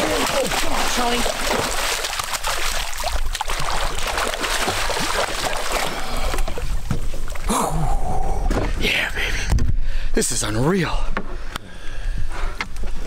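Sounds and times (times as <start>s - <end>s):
water splashing against boat: 0.0s - 8.8s.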